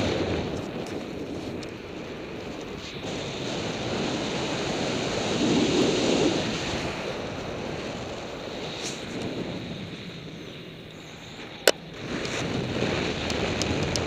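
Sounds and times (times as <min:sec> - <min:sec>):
wind rushing over microphone: 0:00.0 - 0:14.0.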